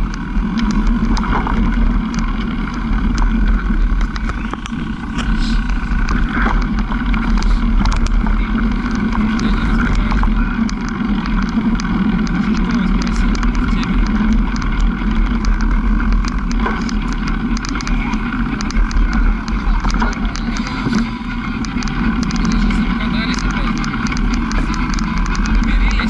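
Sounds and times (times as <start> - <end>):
bicycle clicks and rattles: 0.0 - 26.0
bicycle tyre rumble on dirt: 0.0 - 26.0
wind on microphone: 0.0 - 26.0.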